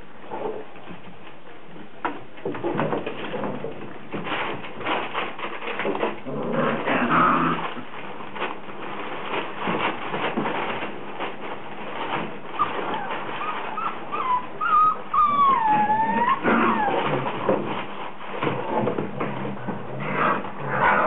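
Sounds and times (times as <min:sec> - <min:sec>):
scuffling and knocking: 0:00.4 - 0:21.0
puppies whimpering and growling: 0:12.0 - 0:17.9, 0:19.6 - 0:21.0
puppy crying: 0:12.6 - 0:17.4.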